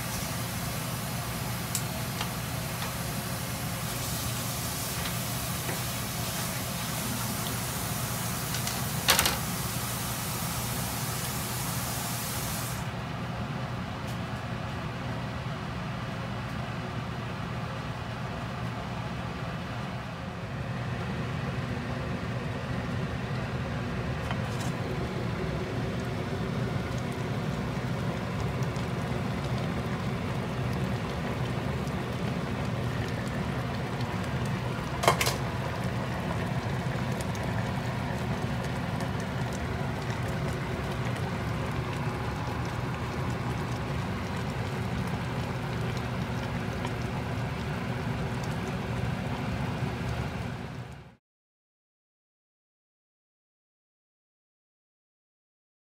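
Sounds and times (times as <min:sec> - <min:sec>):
pot bubbling: 0:22.9 - 0:51.1.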